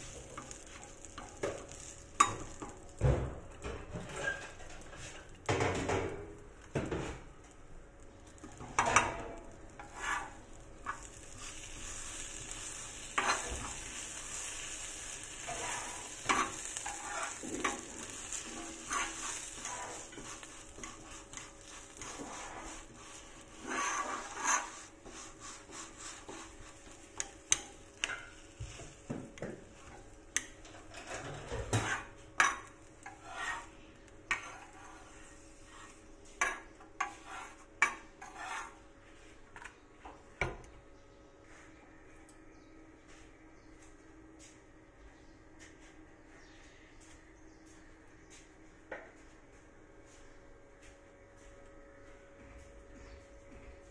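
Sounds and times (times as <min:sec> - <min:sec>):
bread sizzling on a griddle: 0:00.0 - 0:39.4
metal tongs scraping and tapping: 0:27.2 - 0:33.7, 0:34.3 - 0:35.1.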